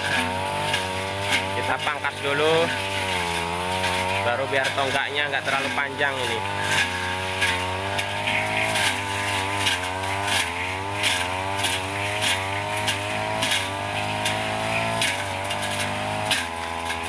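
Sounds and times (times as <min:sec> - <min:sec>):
brush cutter engine: 0:00.0 - 0:17.0
cracks of stems being hit: 0:00.0 - 0:17.0.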